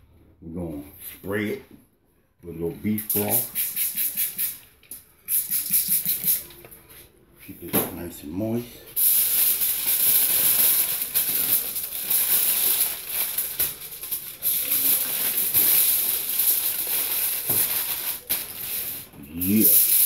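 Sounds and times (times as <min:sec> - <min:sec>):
aluminium foil crinkling: 0:09.0 - 0:20.0.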